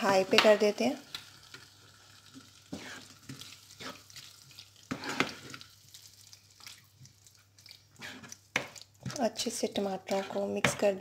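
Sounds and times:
masala sizzling in a pan: 0:00.0 - 0:11.0
plastic spatula scraping paste: 0:02.7 - 0:03.1, 0:04.9 - 0:05.6, 0:07.9 - 0:09.4, 0:10.0 - 0:10.9.

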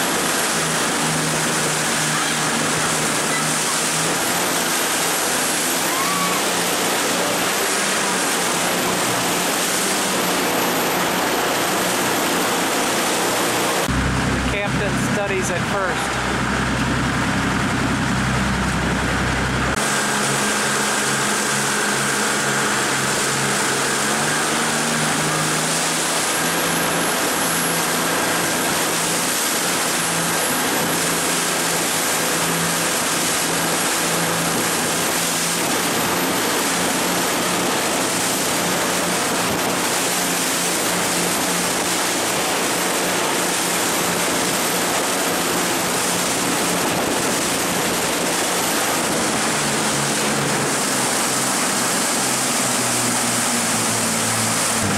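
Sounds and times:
boat engine hum: 0:00.0 - 0:54.9
churning water and spray: 0:00.0 - 0:54.9
deep rumble: 0:13.8 - 0:19.8, 0:54.6 - 0:54.9.

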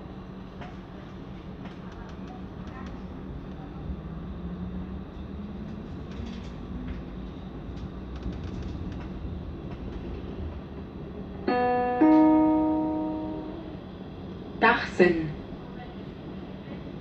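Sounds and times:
train running rumble: 0:00.0 - 0:17.0
two-note electronic chime: 0:11.5 - 0:13.8.

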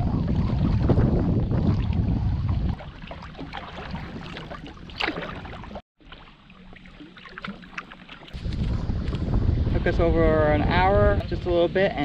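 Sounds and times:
loud water splash: 0:00.0 - 0:08.8
paddle strokes splashing: 0:01.6 - 0:08.7.

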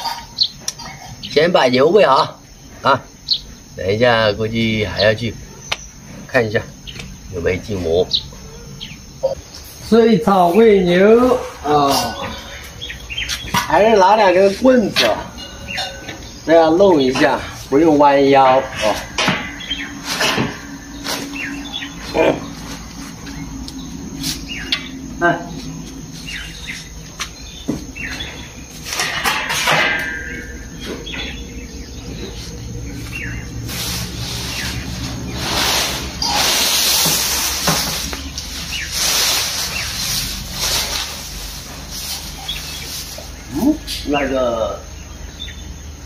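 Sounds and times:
small birds chirping: 0:00.0 - 0:46.0
wooden sticks knocking and scraping: 0:11.8 - 0:31.4, 0:32.2 - 0:44.0
grass rustling and swishing: 0:17.6 - 0:29.6, 0:32.2 - 0:44.1.

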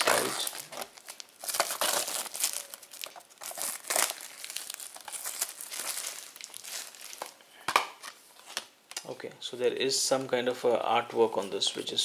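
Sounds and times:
plastic shrink-wrap crinkling: 0:00.0 - 0:07.4.

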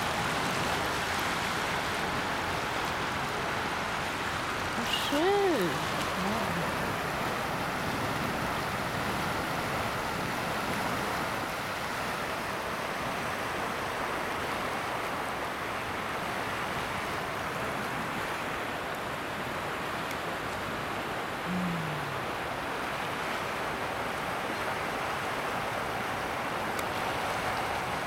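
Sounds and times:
river water rushing over pebbles: 0:00.0 - 0:28.0.

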